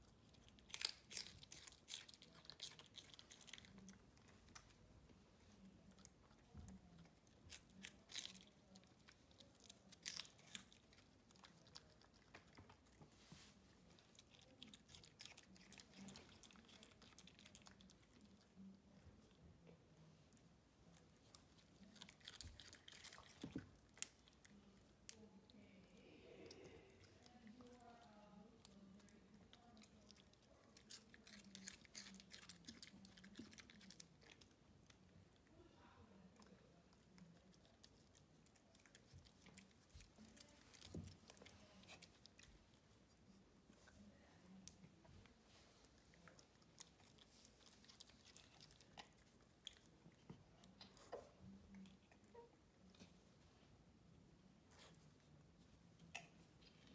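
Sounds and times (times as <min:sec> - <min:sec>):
dog crunching cabbage: 0:00.1 - 0:04.8, 0:05.8 - 0:19.0, 0:21.2 - 0:25.2, 0:28.6 - 0:35.1, 0:36.4 - 0:44.6, 0:45.9 - 0:52.2
dog chewing crunchy leaves: 0:00.5 - 0:04.0, 0:30.8 - 0:34.4.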